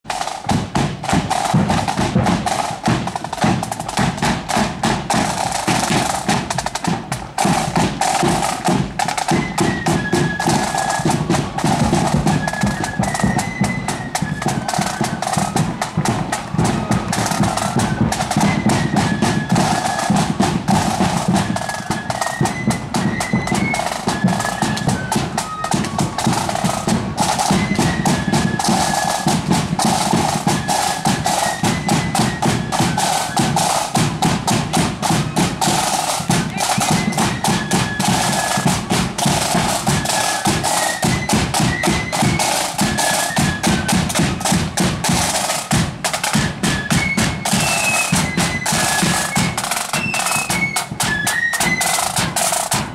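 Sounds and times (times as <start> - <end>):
side drums and bass drum beat: 0.0 - 52.9
marching band playing: 0.1 - 52.9.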